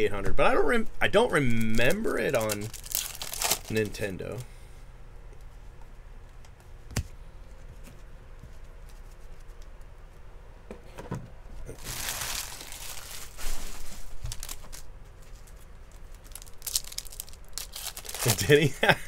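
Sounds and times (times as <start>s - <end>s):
foil wrappers crinkling: 1.5s - 4.4s, 11.7s - 18.8s.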